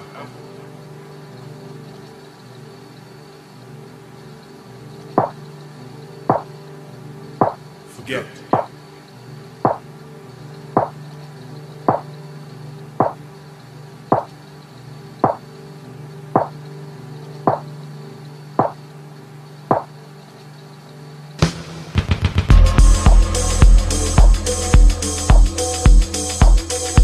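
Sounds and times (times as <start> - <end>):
electronic beat: 13.0 - 13.2, 15.2 - 15.4, 21.4 - 27.0
low electronic drone: 21.4 - 27.0.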